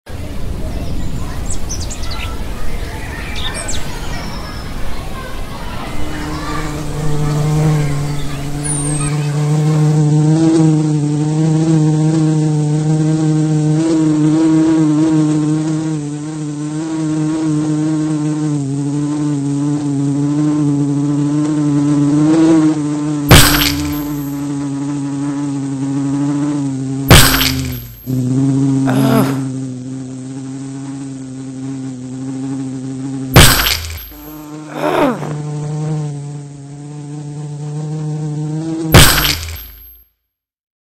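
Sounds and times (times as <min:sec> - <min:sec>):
fly buzzing: 0:03.1 - 0:40.0
sharp knocks: 0:27.1 - 0:28.1.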